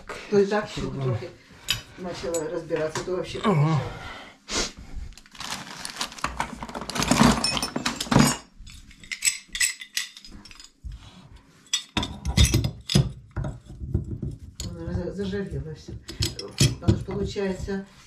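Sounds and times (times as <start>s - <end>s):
metal tools clinking on tap and sink: 1.6s - 2.6s, 6.8s - 17.7s.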